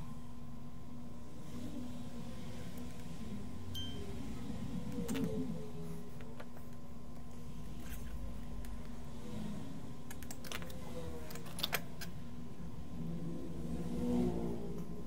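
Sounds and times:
steady low hum: 0:00.0 - 0:15.0.

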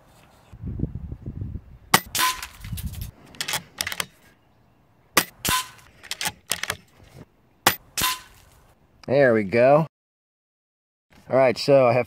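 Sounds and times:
air rifle shots: 0:01.9 - 0:02.7, 0:05.2 - 0:06.8, 0:07.7 - 0:08.4.

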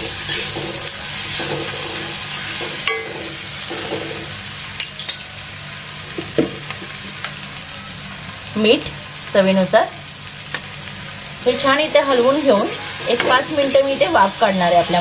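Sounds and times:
spatula scraping pan: 0:00.0 - 0:02.9
masala sizzling in hot oil: 0:00.0 - 0:15.0.

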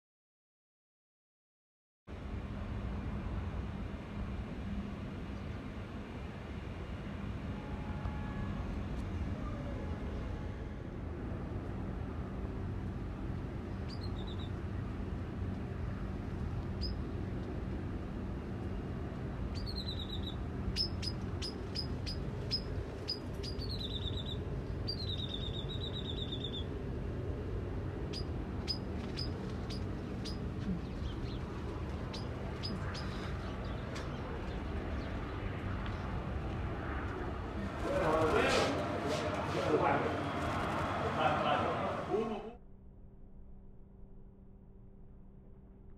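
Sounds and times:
birds chirping: 0:13.6 - 0:14.6, 0:16.7 - 0:17.1, 0:19.5 - 0:26.8, 0:28.0 - 0:36.1.

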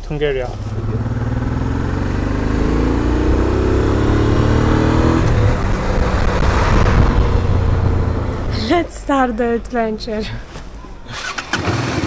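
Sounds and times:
road noise: 0:00.0 - 0:12.0
vehicle engine accelerating: 0:00.2 - 0:08.8.

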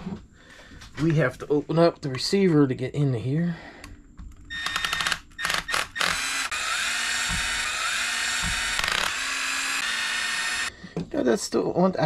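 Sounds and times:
electric screwdriver running: 0:04.5 - 0:10.7.

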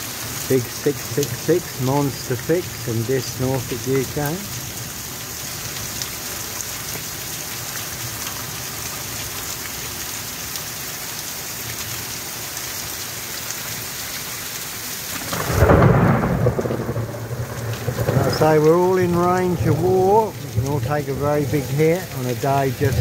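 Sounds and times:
heavy rain pouring: 0:00.0 - 0:23.0
thunder clap and rumble: 0:15.2 - 0:23.0.

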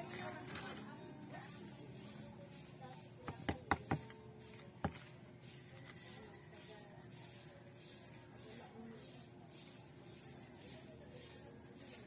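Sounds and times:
sharp taps on plastic pot: 0:03.2 - 0:04.2.

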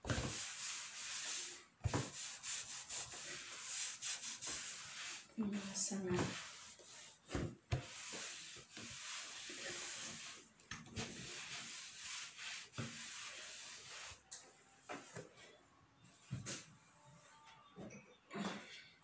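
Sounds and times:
rubbing and scraping: 0:00.0 - 0:14.3.

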